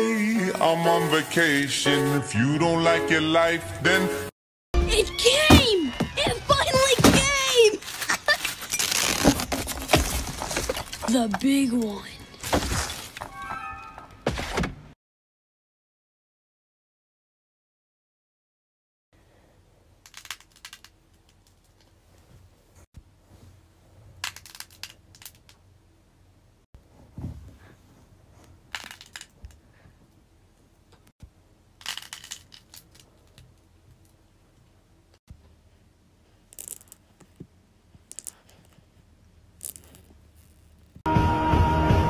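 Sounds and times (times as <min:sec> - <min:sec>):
fidget toys crackling: 0:20.0 - 0:21.9, 0:24.2 - 0:25.6, 0:31.8 - 0:34.2, 0:36.5 - 0:37.2, 0:38.0 - 0:38.8, 0:39.6 - 0:40.9.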